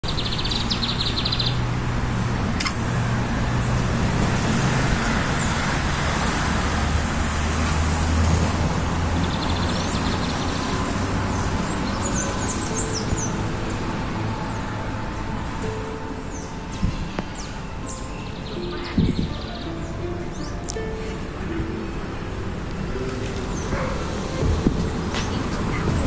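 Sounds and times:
small birds singing: 0.0 - 1.7, 9.2 - 13.8, 16.1 - 21.0
traffic noise: 0.0 - 26.0
sharp click: 2.6 - 2.8.

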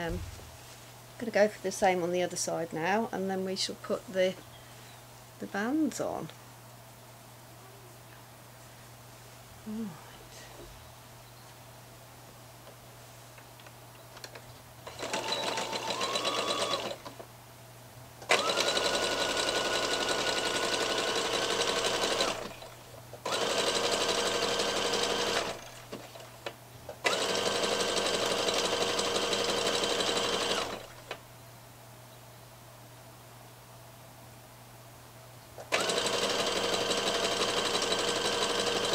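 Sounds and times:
sewing machine stitching: 14.9 - 17.2, 18.3 - 26.3, 27.0 - 31.0, 35.6 - 38.9.

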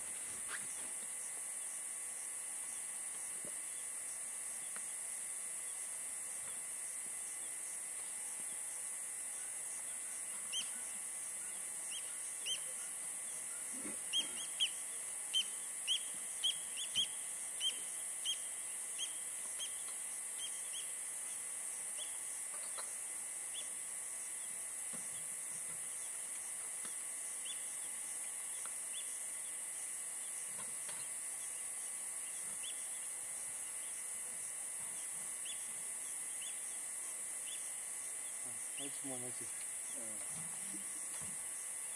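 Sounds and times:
steady high hiss: 0.0 - 41.9
bird calling in sharp notes: 11.4 - 21.0.

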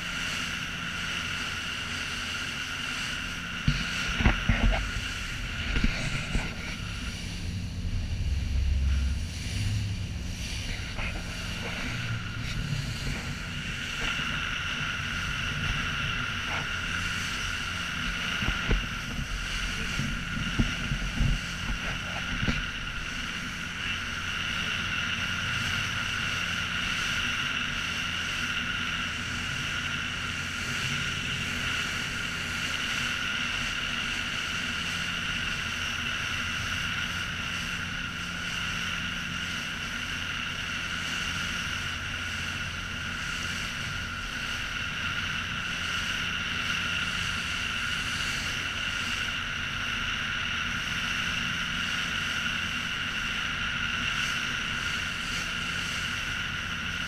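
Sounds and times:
motorboat engine running: 0.0 - 57.0.

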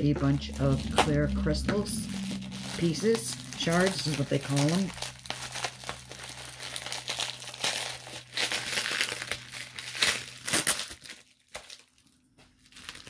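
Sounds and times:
plastic packaging crinkling: 0.2 - 13.0.

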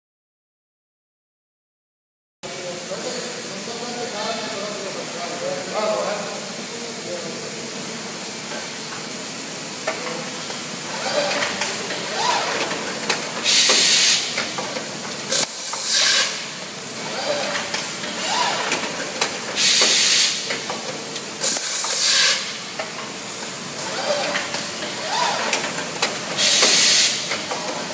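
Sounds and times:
compressed air hissing: 8.6 - 27.9
bag-making machine clattering: 10.9 - 27.9.

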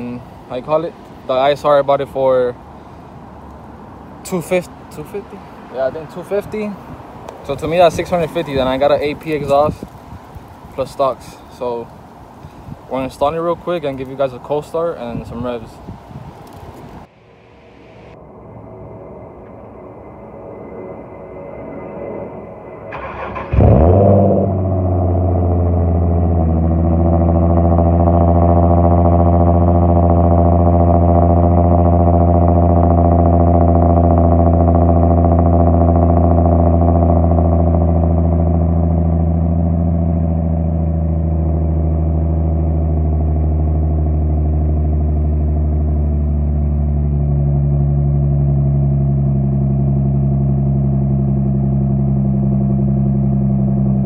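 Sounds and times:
car engine idling: 16.4 - 54.0.

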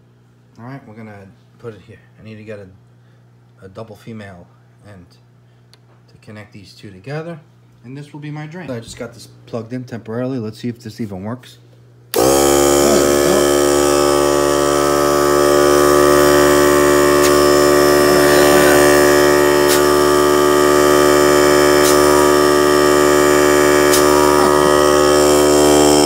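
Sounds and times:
air compressor motor humming: 12.1 - 26.0.

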